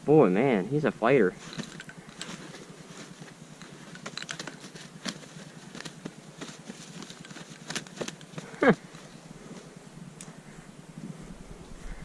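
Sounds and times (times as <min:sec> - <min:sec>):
feathers rustling: 0:01.2 - 0:12.0
goose wings flapping: 0:01.4 - 0:09.6.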